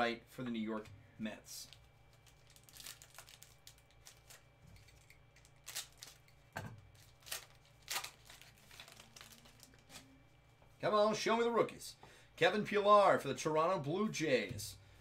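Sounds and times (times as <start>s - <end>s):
plastic wrapper crinkling and tearing: 1.6s - 10.1s.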